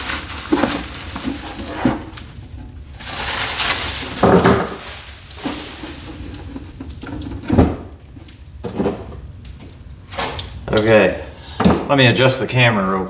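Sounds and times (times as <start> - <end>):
packing material rustling: 0.0 - 6.8.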